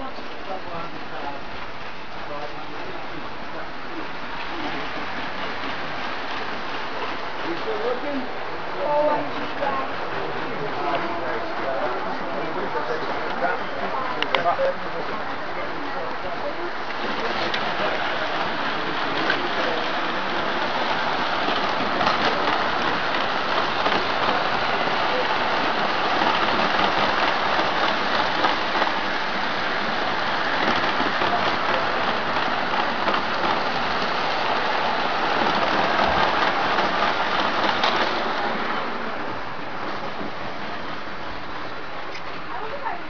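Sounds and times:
model train wheels clattering: 16.5 - 39.0.

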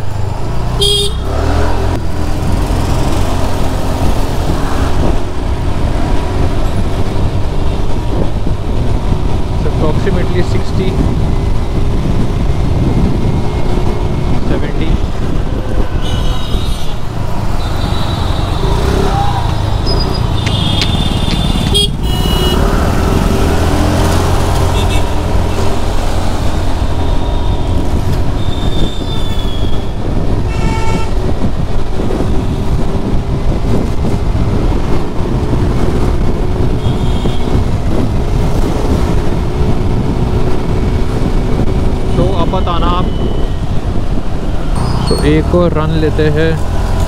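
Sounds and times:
vehicle horns honking: 0.8 - 1.3, 15.9 - 19.1, 19.8 - 22.7, 24.7 - 25.2, 28.4 - 31.3, 36.7 - 37.6
wind rushing over microphone: 1.3 - 47.0
scooter engine rumble: 17.4 - 23.1.

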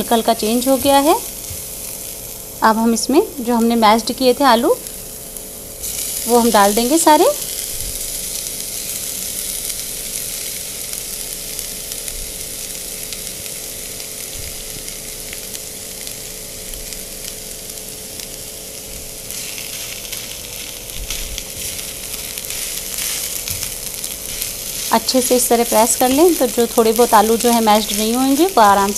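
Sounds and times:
oil sizzling in frying pan: 0.0 - 28.9
potatoes scraped into pan: 19.3 - 28.9.

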